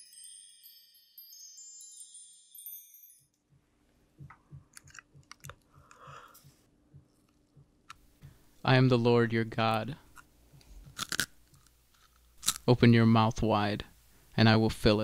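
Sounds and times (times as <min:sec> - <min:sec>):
shimmering high chime tones: 0:00.0 - 0:03.4
low steady hum with pulses: 0:04.1 - 0:11.5
dental instruments clicking on teeth: 0:04.6 - 0:06.3, 0:10.1 - 0:12.7.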